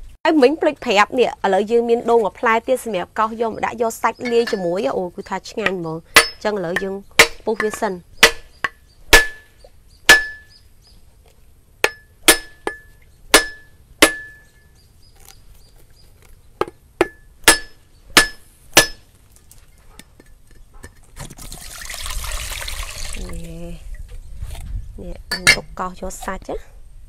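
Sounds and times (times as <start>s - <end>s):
cleaver knocking coconut shell: 5.6s - 9.5s.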